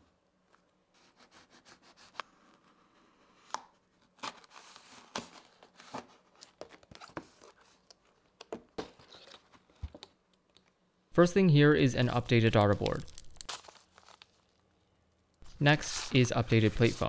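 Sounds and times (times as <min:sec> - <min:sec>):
packaging tearing and crinkling: 0:12.6 - 0:14.7.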